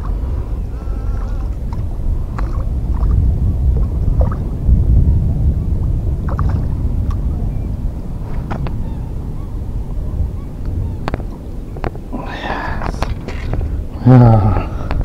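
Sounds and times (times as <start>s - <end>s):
fish splashing in water: 0.0s - 4.5s, 6.2s - 7.2s, 12.8s - 13.8s
wind rumbling on microphone: 0.0s - 15.0s.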